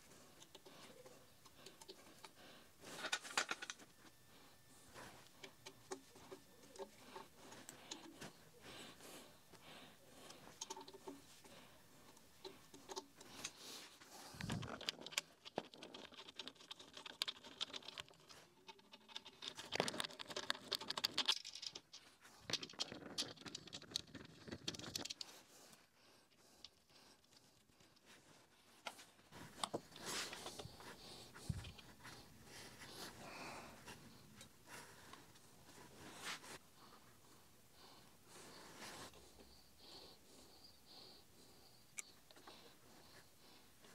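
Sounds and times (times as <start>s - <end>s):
metal parts clicking and rattling: 2.9s - 4.0s, 14.4s - 25.3s.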